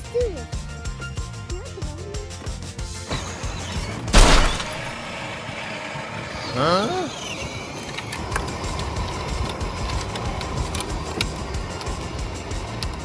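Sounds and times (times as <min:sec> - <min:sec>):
toy car motor whine: 0:02.9 - 0:04.2, 0:05.0 - 0:13.0
loud sudden burst: 0:04.2 - 0:05.2
plastic wheels rolling: 0:05.1 - 0:13.0.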